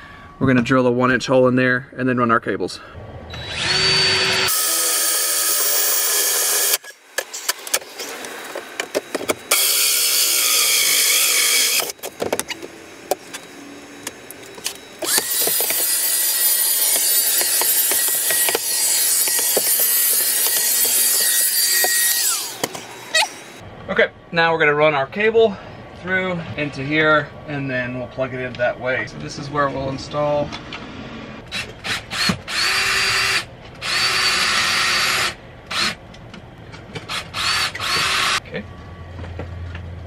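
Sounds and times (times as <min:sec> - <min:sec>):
power drill boring through wood: 0:03.3 - 0:07.0, 0:09.5 - 0:12.0, 0:15.0 - 0:23.6, 0:31.5 - 0:36.0, 0:37.1 - 0:38.4.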